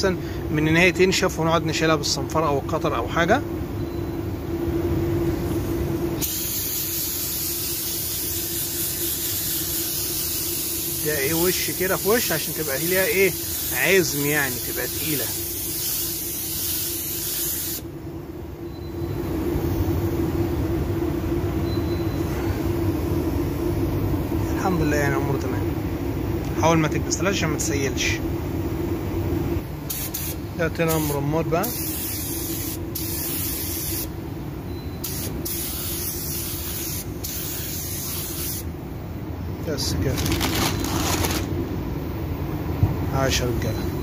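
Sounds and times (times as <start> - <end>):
low mechanical hum: 0.0 - 44.0
paint spray gun hissing: 6.2 - 17.8, 29.9 - 34.1, 35.0 - 38.7.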